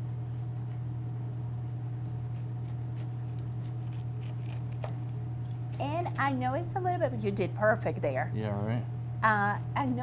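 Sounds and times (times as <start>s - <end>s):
steady low hum: 0.0s - 10.0s
knife cutting pineapple: 2.0s - 6.3s.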